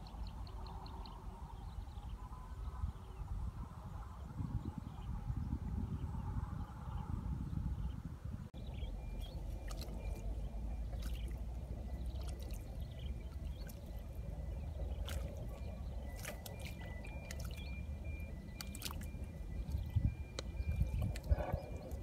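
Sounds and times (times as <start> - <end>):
muddy water trickling and gurgling: 8.6 - 22.0
small drips and splashes: 9.2 - 22.0.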